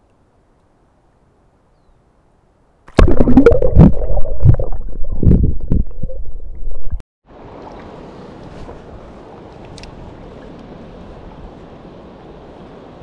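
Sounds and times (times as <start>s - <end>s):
muffled underwater gurgling: 2.9s - 7.0s.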